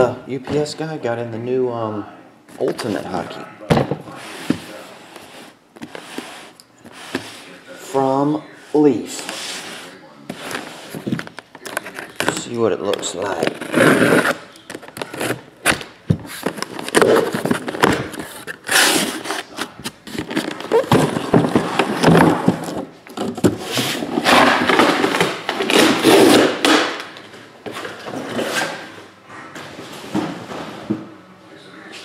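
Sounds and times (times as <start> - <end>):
cardboard scraping: 9.2 - 26.8
packing tape tearing: 13.4 - 21.6, 23.8 - 27.1.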